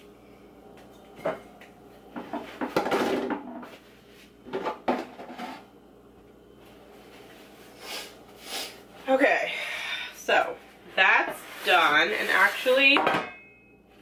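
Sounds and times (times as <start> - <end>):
soft brushing sounds: 3.7 - 4.4, 6.7 - 9.2, 10.5 - 13.0.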